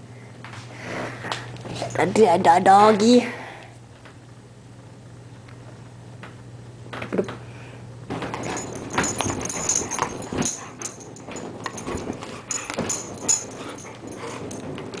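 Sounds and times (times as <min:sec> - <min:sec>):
puppy play noises: 0:08.3 - 0:15.0.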